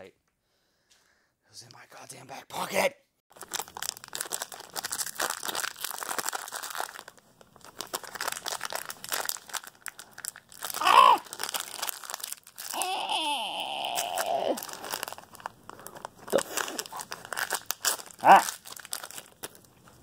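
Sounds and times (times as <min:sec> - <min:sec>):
blister pack crinkling and crackling: 0:03.3 - 0:20.0
person grunting: 0:10.8 - 0:11.2, 0:12.7 - 0:14.7, 0:18.2 - 0:18.4
person yelling with effort: 0:10.8 - 0:11.2, 0:12.7 - 0:14.6.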